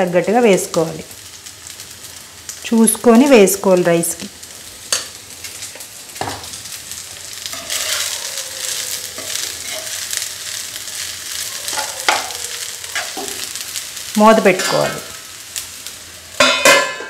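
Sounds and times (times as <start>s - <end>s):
light sizzling in oil: 0.0s - 17.0s
spoon scraping rice in pan: 7.5s - 10.1s, 11.7s - 13.6s.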